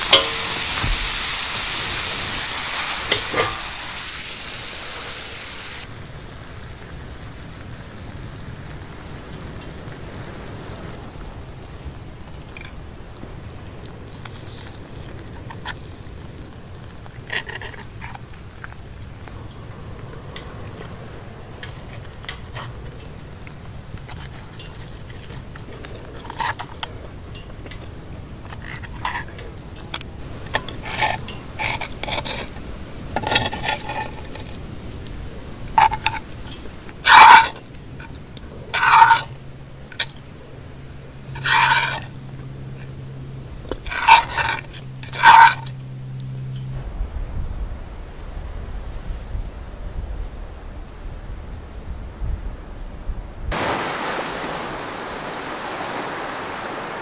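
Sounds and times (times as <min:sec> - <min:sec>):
fork scraping frying pan: 0:00.0 - 0:05.7, 0:29.9 - 0:32.5, 0:33.2 - 0:34.6, 0:35.8 - 0:37.6, 0:38.8 - 0:39.3, 0:41.3 - 0:42.1, 0:43.9 - 0:45.7.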